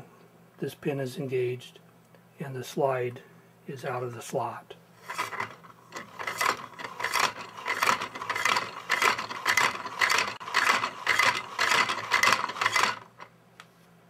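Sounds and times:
plastic parts rattling and scraping: 0:05.0 - 0:13.3.

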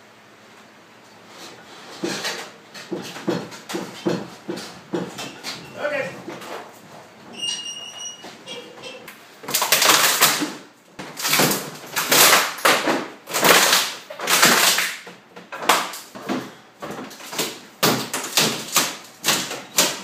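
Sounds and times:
hammer knocking on plywood crate: 0:02.8 - 0:05.7.

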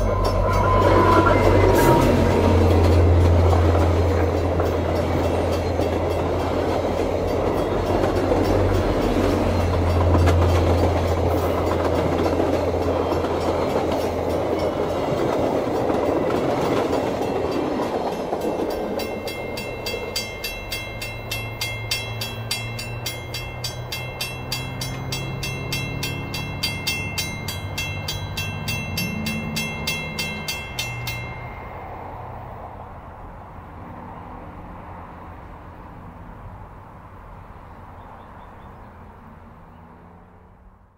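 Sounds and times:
level crossing bell ringing: 0:00.0 - 0:32.0
train wheels rumbling on rails: 0:00.0 - 0:36.6.

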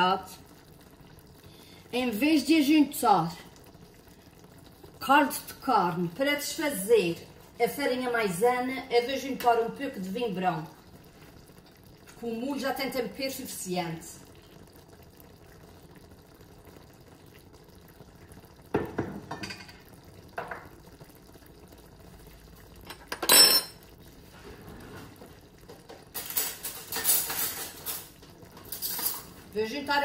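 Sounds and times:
dish knocking on counter: 0:18.7 - 0:19.8, 0:20.4 - 0:20.7
dishes clattering: 0:18.8 - 0:19.8, 0:22.9 - 0:23.8, 0:25.8 - 0:29.4
glass bowl clinking: 0:22.8 - 0:23.8.

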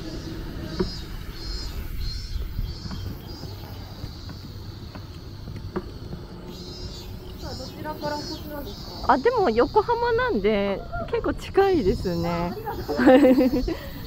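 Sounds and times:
cart wheels rumbling on asphalt: 0:00.0 - 0:14.0
faint high chirping: 0:00.0 - 0:14.0
cart clicks and knocks: 0:02.7 - 0:08.3.

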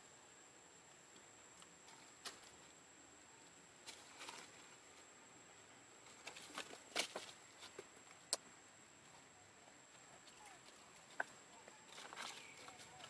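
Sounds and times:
monkeys scuffling over leaves: 0:10.2 - 0:13.0.

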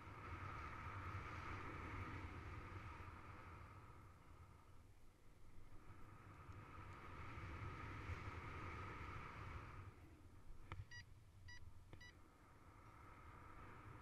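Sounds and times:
wind rushing over microphone: 0:00.0 - 0:11.0
short beeps: 0:10.8 - 0:12.2.

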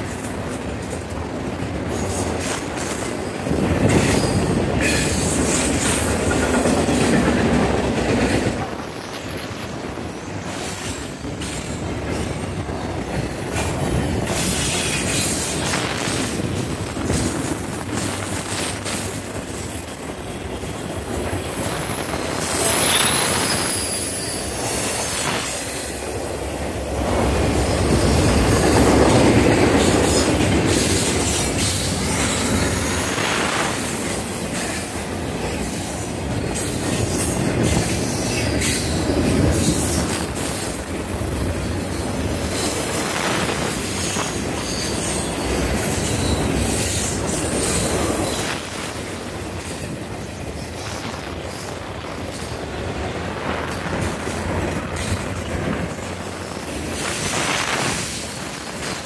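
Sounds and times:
train wheels rumbling on rails: 0:00.0 - 0:59.0
wheels clicking over rail joints: 0:00.0 - 0:59.0
high wheel squeal: 0:21.8 - 0:29.2, 0:37.0 - 0:40.5, 0:41.6 - 0:48.7, 0:55.0 - 0:58.3.

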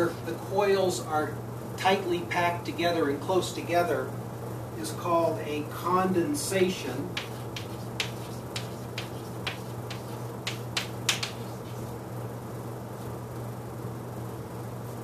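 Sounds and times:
steady low hum: 0:00.0 - 0:15.0
chalk tapping on a chalkboard: 0:07.1 - 0:11.9.

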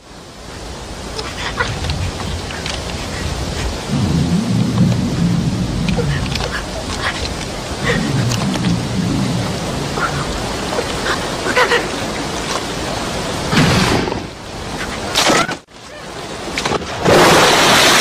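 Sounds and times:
white-water river rushing: 0:00.0 - 0:13.6.

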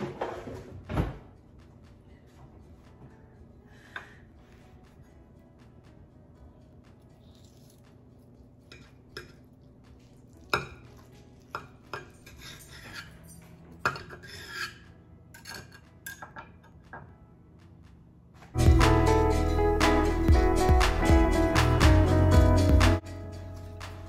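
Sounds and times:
knife scraping a pan: 0:11.9 - 0:13.3, 0:13.9 - 0:15.8.

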